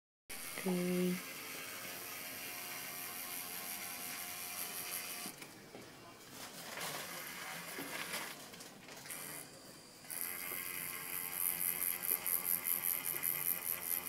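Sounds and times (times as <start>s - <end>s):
electric tattoo machine buzzing: 0.3s - 5.3s, 7.0s - 7.9s, 9.0s - 14.0s.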